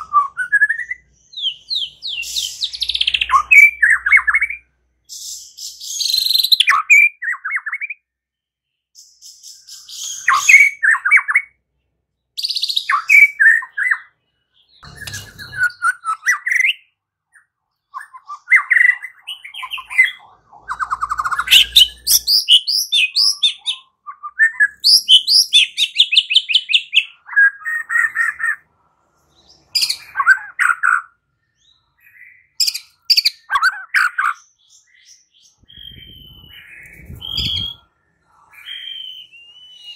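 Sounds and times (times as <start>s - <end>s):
songbird trilling and whistling: 0.0s - 8.1s, 9.0s - 11.6s, 12.4s - 28.7s, 29.3s - 39.9s.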